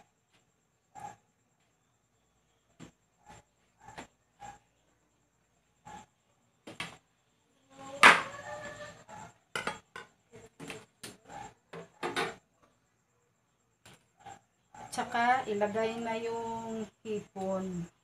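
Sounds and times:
dishes and utensils clinking: 9.5s - 10.2s.

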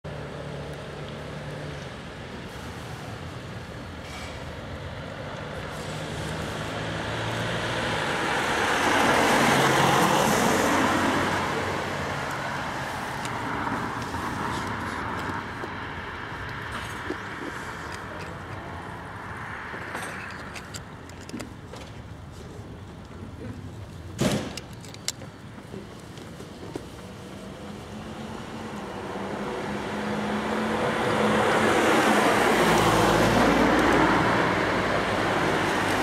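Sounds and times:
vehicle passing by: 4.7s - 20.3s, 27.1s - 36.0s.

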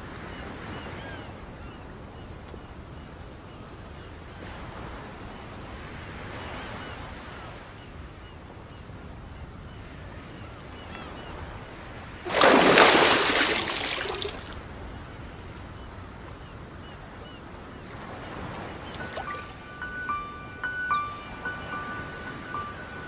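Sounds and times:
sea water washing on beach: 12.2s - 14.6s
rush of water: 12.2s - 14.7s
faint bird chirps: 18.2s - 23.0s.

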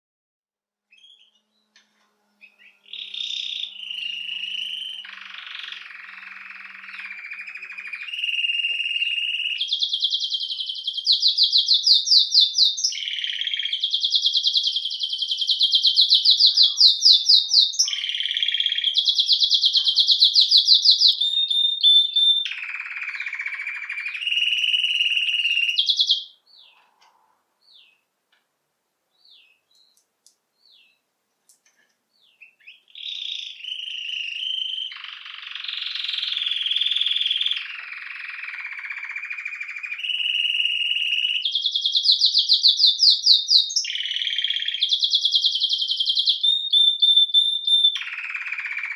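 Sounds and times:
canary singing trills: 2.4s - 28.1s, 29.1s - 31.0s, 32.1s - 48.9s.

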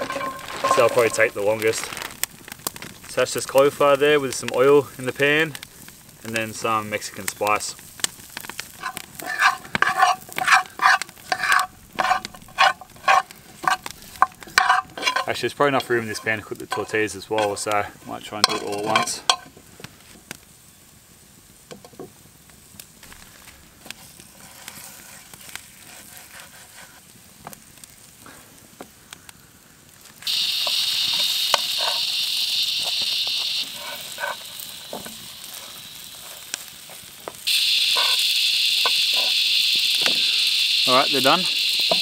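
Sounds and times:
spatula scraping pan: 0.0s - 2.1s, 8.4s - 19.5s, 23.9s - 27.1s, 30.3s - 42.0s
food sizzling in oil: 0.0s - 28.2s, 29.9s - 42.0s
faint crackles: 0.0s - 42.0s.

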